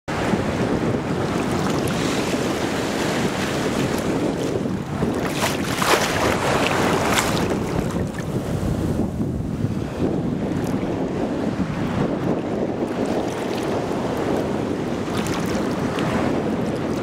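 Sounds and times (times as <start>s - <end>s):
wind buffeting microphone: 0.1s - 17.0s
sea water lapping: 0.4s - 17.0s
water splashes: 1.3s - 8.5s, 12.9s - 17.0s.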